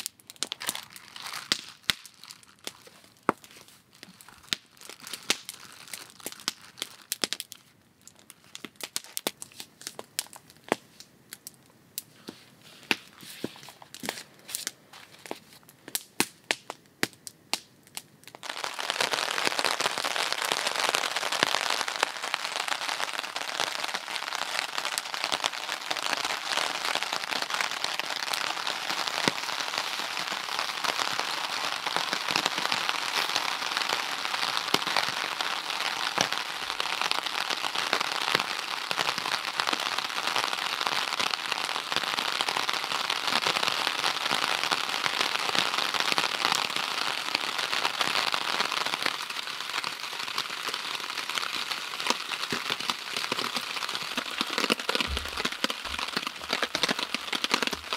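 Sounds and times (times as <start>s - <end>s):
campfire crackling and popping: 0.0s - 57.9s
rain falling on forest floor: 0.0s - 57.9s
packaging crinkling: 0.4s - 3.2s.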